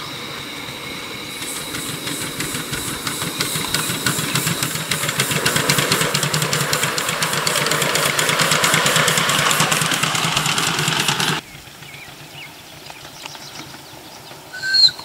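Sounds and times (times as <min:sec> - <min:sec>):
steam hiss: 0:00.0 - 0:11.4
steam locomotive exhaust chuffs: 0:00.0 - 0:15.0.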